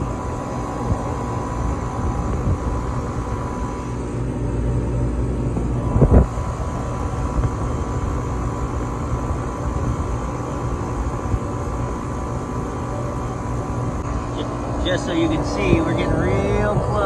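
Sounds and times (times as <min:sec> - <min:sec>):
compressor humming: 0:00.0 - 0:17.0
fan and air noise: 0:00.0 - 0:17.0.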